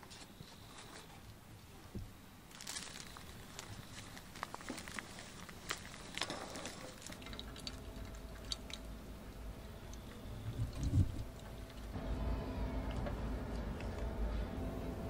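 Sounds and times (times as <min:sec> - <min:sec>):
ground coffee rustling: 0:02.5 - 0:08.2
passing train rumble: 0:08.0 - 0:15.0.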